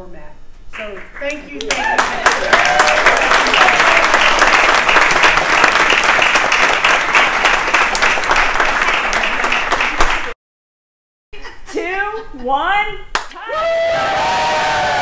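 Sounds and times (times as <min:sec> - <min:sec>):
crowd applauding: 0:01.6 - 0:10.4, 0:13.4 - 0:15.0.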